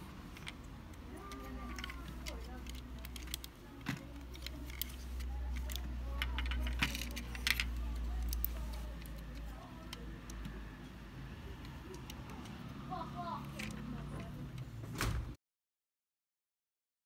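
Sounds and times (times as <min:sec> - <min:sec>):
metal toy car clicks: 0:00.0 - 0:10.6, 0:11.5 - 0:12.8, 0:13.4 - 0:14.7.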